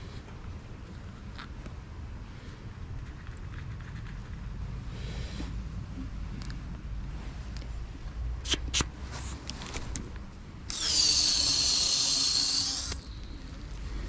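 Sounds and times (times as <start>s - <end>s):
sharp clicks: 10.7s - 13.1s.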